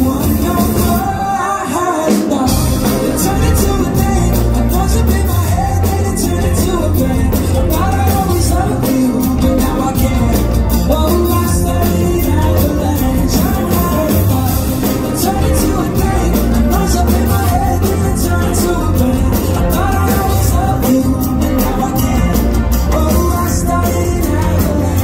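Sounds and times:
live pop-rock band playing: 0.0 - 25.0
man singing: 0.0 - 25.0.

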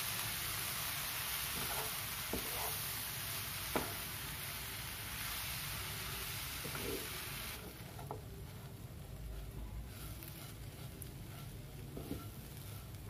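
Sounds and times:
frying sizzle: 0.0 - 13.0
spatula scraping oats in pan: 1.3 - 3.0, 9.2 - 13.0.

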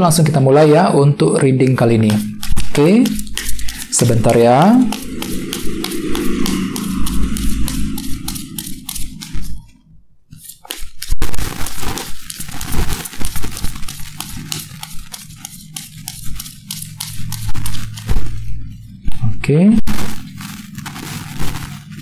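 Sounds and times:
cards being shuffled: 2.0 - 5.0, 10.4 - 18.2.

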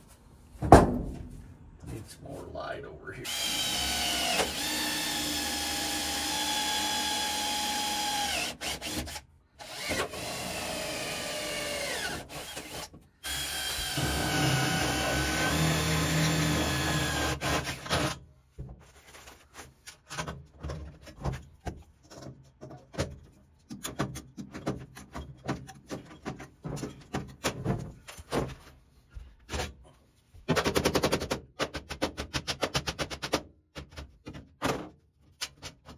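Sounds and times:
cordless drill boring through sheet metal: 3.2 - 18.2.

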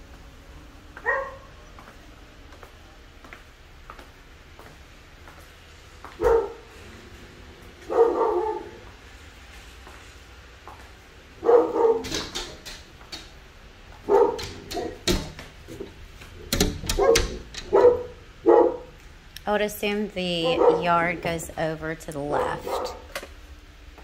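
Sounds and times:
dog barking: 1.0 - 1.5, 6.2 - 6.7, 7.8 - 8.8, 11.4 - 12.2, 14.0 - 15.0, 17.0 - 18.9, 20.5 - 20.9, 22.6 - 23.1.

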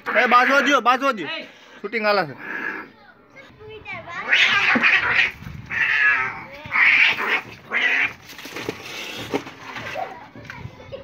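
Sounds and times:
cats fighting and yowling: 4.2 - 9.5.

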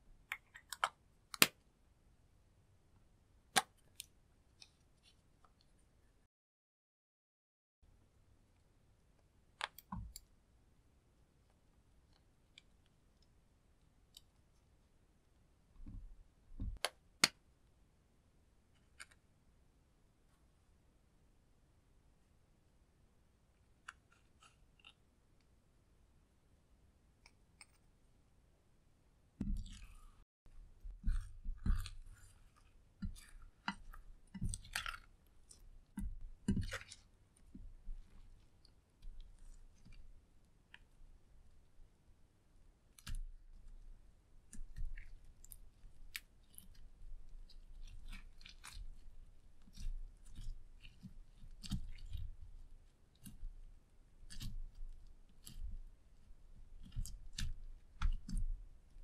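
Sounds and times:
slime squishing: 29.4 - 41.8, 42.8 - 59.0.

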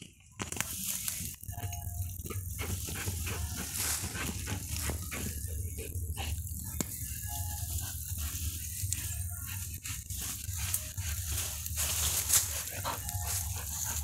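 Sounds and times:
dry grass and twigs rattling: 0.0 - 14.0
dog paws scratching dirt: 2.1 - 14.0.

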